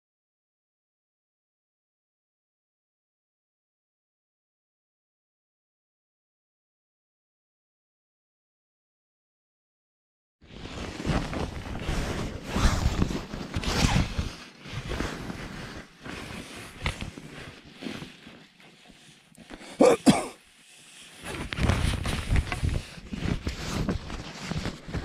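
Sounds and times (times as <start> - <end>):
tent fabric rustling: 10.4 - 25.0.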